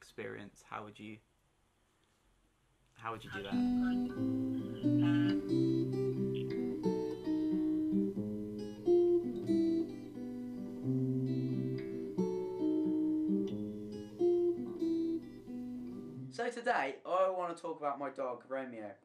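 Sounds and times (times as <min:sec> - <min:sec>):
acoustic guitar playing chords: 0:03.2 - 0:16.4.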